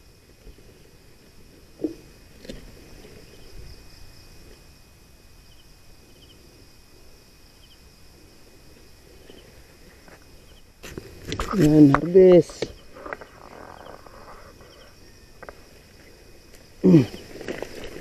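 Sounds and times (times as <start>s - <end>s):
cricket double chirp: 0.0s - 18.0s
insects buzzing: 0.0s - 18.0s
leaves rustling: 8.2s - 18.0s.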